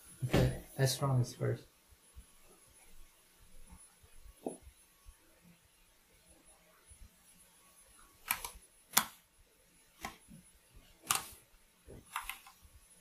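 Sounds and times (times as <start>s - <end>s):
computer mouse clicks: 8.2s - 9.2s, 11.0s - 11.4s, 12.0s - 12.6s.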